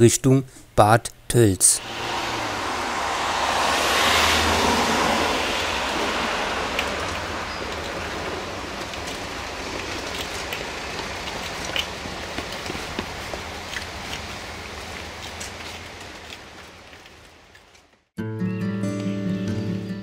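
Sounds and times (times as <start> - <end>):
steady rushing noise: 1.8 - 17.5
bicycles wheeled down steps: 1.8 - 18.1.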